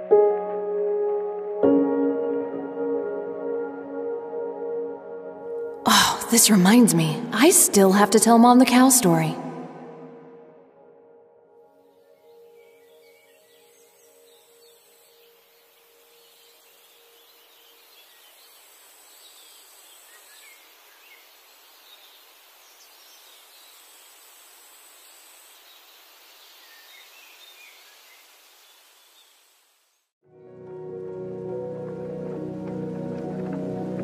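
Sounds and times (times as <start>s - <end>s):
music: 0.0s - 8.2s, 9.2s - 15.5s, 30.2s - 34.0s
steady hiss: 14.6s - 30.1s.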